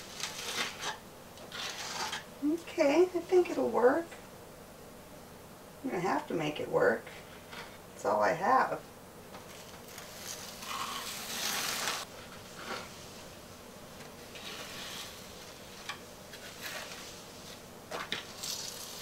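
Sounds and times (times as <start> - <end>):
spreader scraping mortar: 0.0 - 2.3, 14.2 - 17.6.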